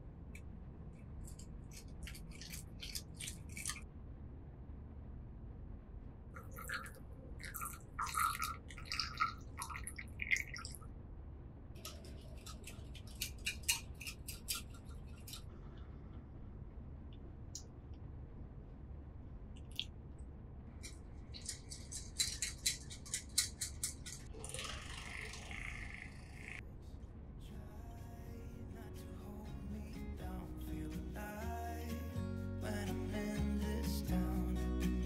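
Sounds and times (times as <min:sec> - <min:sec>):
wire whisk scraping a bowl: 0:11.8 - 0:15.5.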